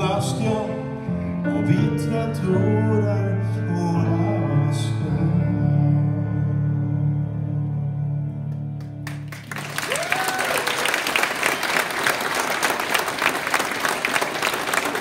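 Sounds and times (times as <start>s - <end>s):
man singing: 0.0s - 8.8s
piano: 0.0s - 15.0s
audience applause: 9.0s - 15.0s.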